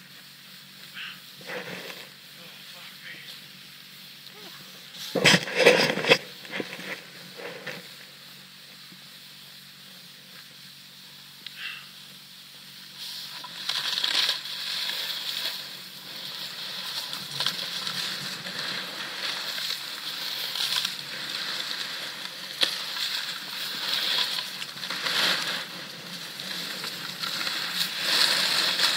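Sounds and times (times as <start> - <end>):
snowboard scraping through snow: 0.0 - 9.0, 12.8 - 28.9.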